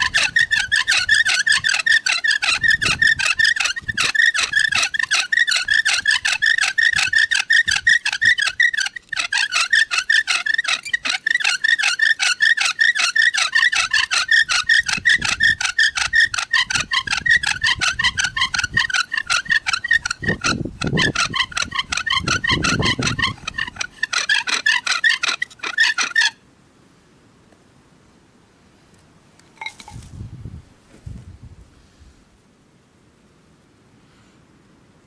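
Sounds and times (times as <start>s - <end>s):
bow drill spindle squeaking: 0.0s - 26.4s, 29.6s - 30.0s.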